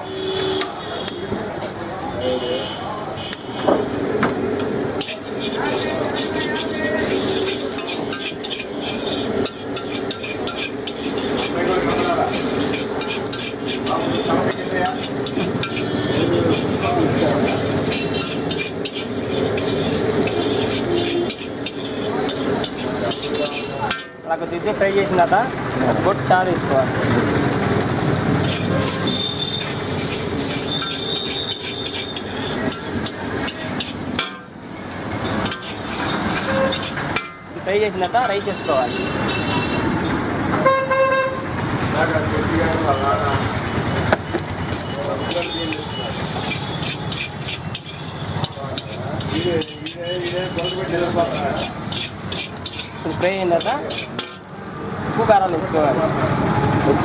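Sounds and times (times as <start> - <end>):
food sizzling in hot oil: 0.0 - 57.0
metal ladle scraping a wok: 4.0 - 24.2, 27.9 - 39.4, 44.7 - 54.5.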